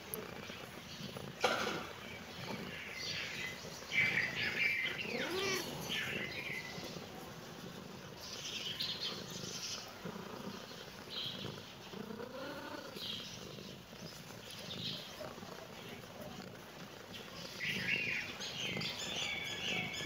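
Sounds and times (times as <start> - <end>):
small birds chirping: 0.0 - 20.0
cat meowing: 5.1 - 5.8.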